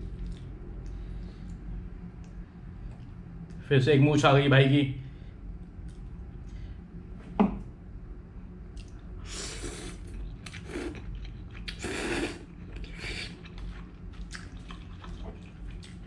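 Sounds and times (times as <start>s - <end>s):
person slurping and chewing noodles: 9.2s - 16.0s.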